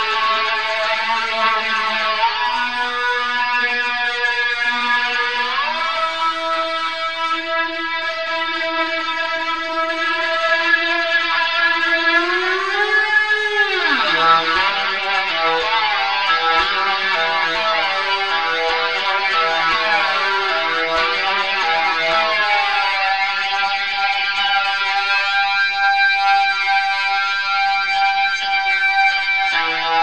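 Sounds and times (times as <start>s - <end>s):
lap steel guitar slide notes: 9.6s - 22.2s.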